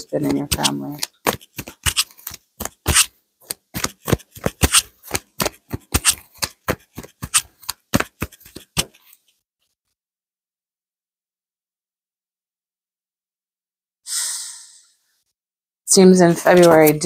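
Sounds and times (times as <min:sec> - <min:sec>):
cards being shuffled: 0:00.1 - 0:09.4, 0:16.3 - 0:17.0.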